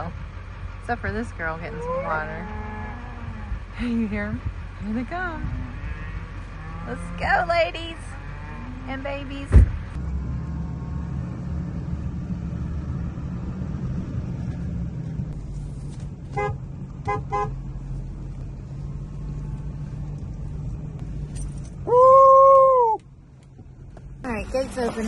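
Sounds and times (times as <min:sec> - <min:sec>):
truck engine running: 0:00.0 - 0:25.0
truck horn toots: 0:16.4 - 0:17.6.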